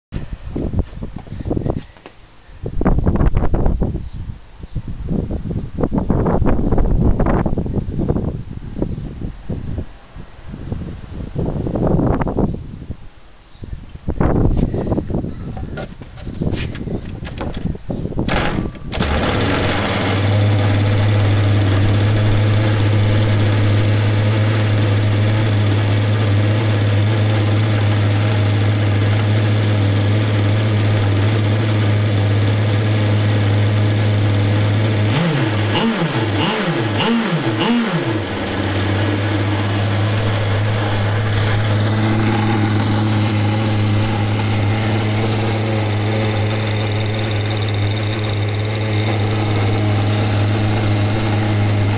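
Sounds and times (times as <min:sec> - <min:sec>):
engine revving: 0:18.3 - 0:51.9
model boat engine idling: 0:18.3 - 0:51.9.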